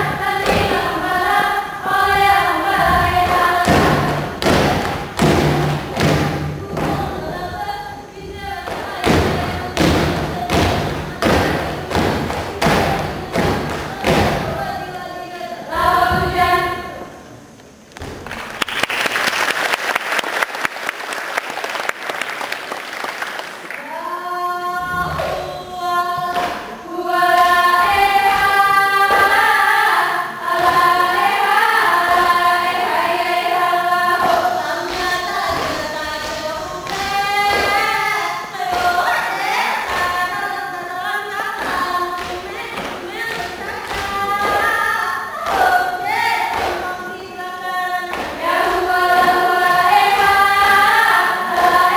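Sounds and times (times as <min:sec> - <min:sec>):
group singing in unison: 0:00.0 - 0:17.9, 0:23.7 - 0:51.9
hands clapping and slapping bodies: 0:17.9 - 0:23.8, 0:26.3 - 0:26.7, 0:34.9 - 0:37.8, 0:46.5 - 0:46.8, 0:48.1 - 0:48.4.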